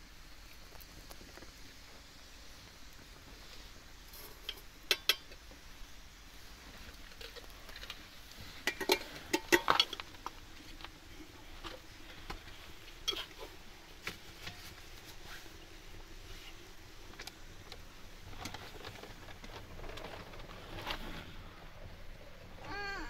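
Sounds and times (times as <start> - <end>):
metal teapot and kettle clinking: 4.2 - 5.5, 8.6 - 10.4, 13.0 - 13.5.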